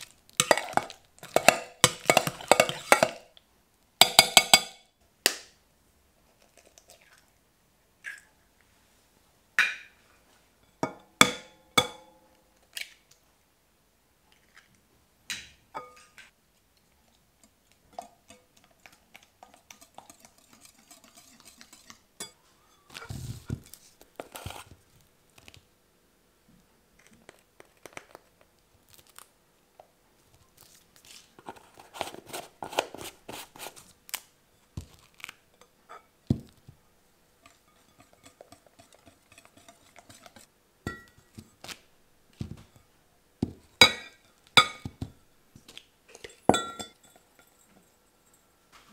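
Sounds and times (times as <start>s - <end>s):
whisk scraping glass bowl: 0.4s - 3.2s, 19.4s - 22.0s, 37.4s - 41.4s
glass jug clinking: 40.9s - 41.3s, 46.2s - 48.4s.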